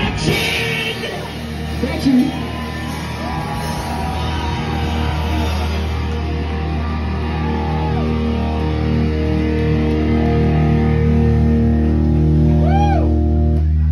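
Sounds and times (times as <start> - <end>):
distorted electric guitar chords: 0.0 - 13.9
steady low drone: 1.2 - 13.9.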